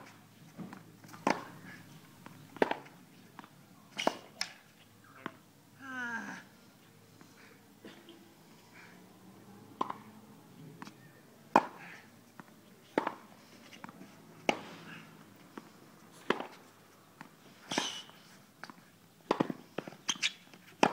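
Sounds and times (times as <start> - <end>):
tennis racket hitting ball: 1.0 - 1.6, 2.6 - 2.9, 4.0 - 4.6, 9.8 - 10.1, 11.5 - 11.9, 13.0 - 13.2, 16.2 - 16.6, 18.6 - 20.9.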